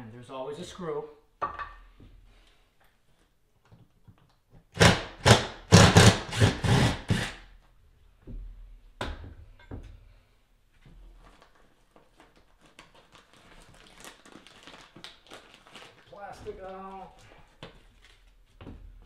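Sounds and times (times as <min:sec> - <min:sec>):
cordless drill into drywall: 0:04.7 - 0:07.5.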